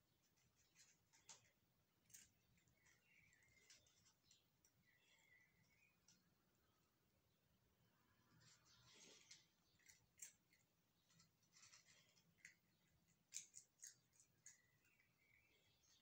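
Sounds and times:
faint small clicks and rustles: 0.2 - 6.6, 8.4 - 16.0.

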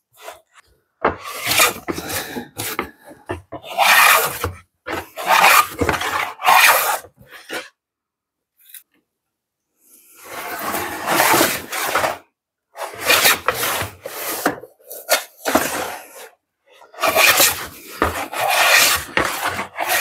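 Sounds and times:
hand plane rasping on wood: 1.2 - 2.9, 3.5 - 7.0, 17.0 - 20.0.

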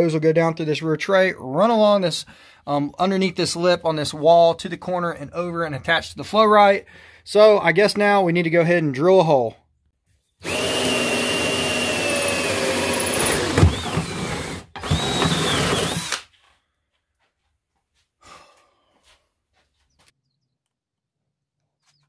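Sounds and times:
power drill whining: 10.4 - 16.3.

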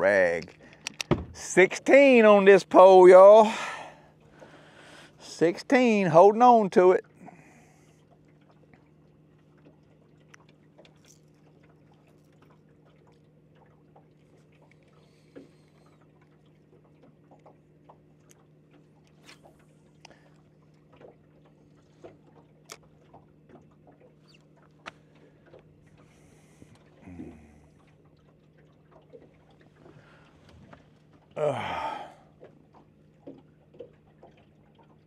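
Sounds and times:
small water sounds: 0.0 - 35.0
light clicks of fishing tackle: 0.1 - 1.1, 7.9 - 31.3.

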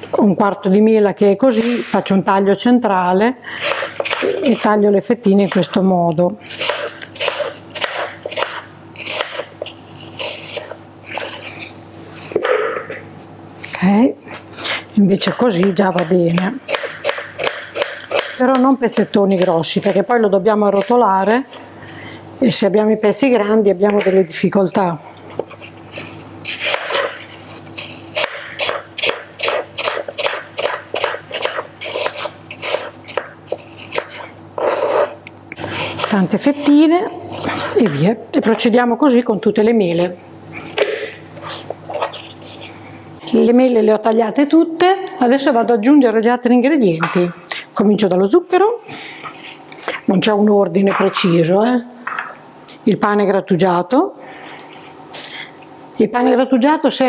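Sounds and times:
knife slicing through apple: 3.6 - 4.7, 6.5 - 11.8, 14.6 - 18.4, 25.4 - 37.9.

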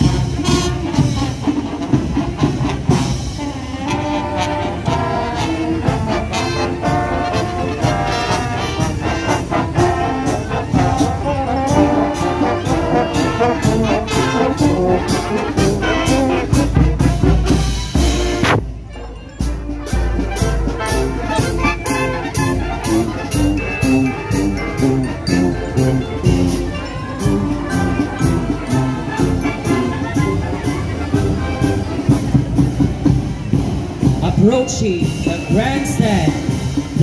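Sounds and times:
brass band playing march: 0.0 - 37.0
bass drum beat: 12.9 - 18.8.

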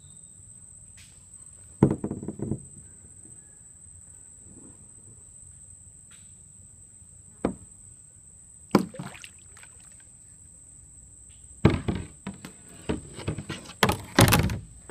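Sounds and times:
kayak knocks and splashes: 8.7 - 10.0, 11.6 - 14.8.

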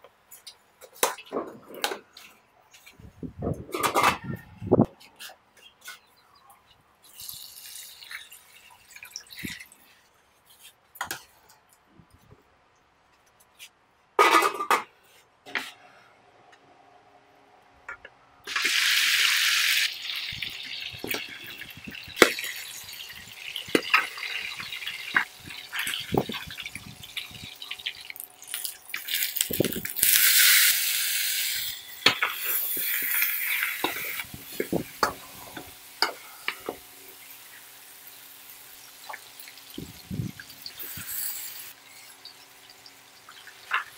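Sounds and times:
chicken frying in hot oil: 7.1 - 10.0, 18.5 - 43.9.

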